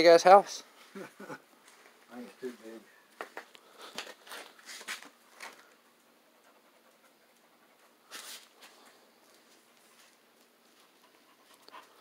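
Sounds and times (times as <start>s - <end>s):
faint breathy panting: 10.8s - 12.0s.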